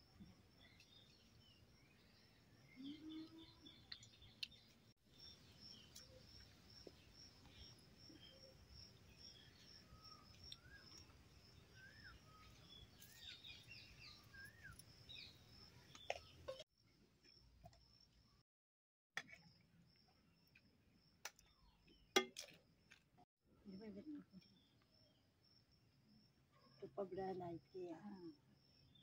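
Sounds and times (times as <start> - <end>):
bird chirping: 0.6 - 16.6.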